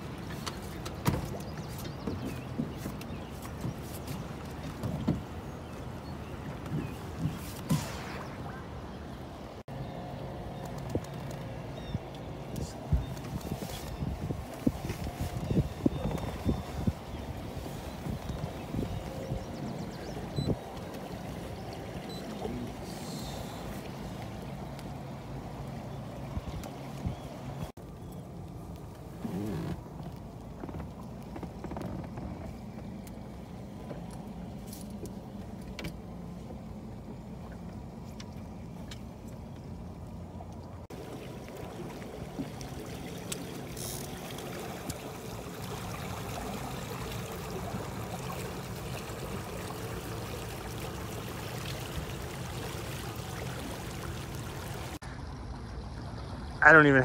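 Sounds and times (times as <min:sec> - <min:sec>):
water rushing past hull: 0:00.0 - 0:10.4, 0:11.6 - 0:28.0, 0:39.8 - 0:57.0
boat motor running: 0:00.0 - 0:57.0.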